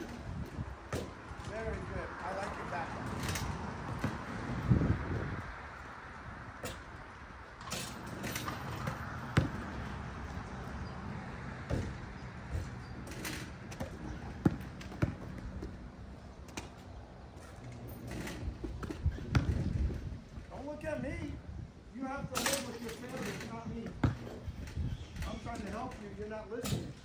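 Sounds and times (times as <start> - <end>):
basketballs bouncing on a court: 3.8 - 4.4, 8.7 - 9.9, 11.6 - 15.8, 18.6 - 20.0, 23.1 - 24.5.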